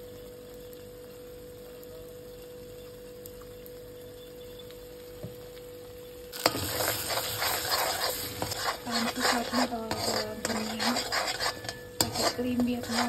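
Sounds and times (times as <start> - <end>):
food sizzling in a pan: 0.0 - 13.0
metal spatula scraping a pan: 6.4 - 13.0.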